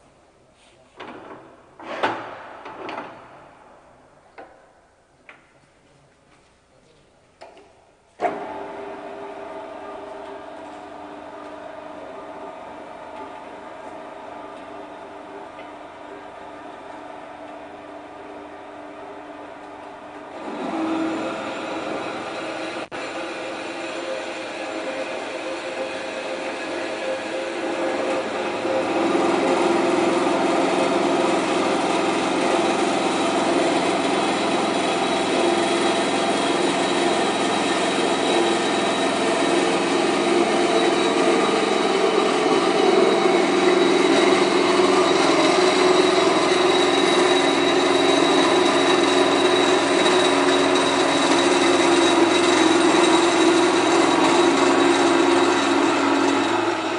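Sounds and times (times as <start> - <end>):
band saw cutting steel tube: 20.3 - 56.9.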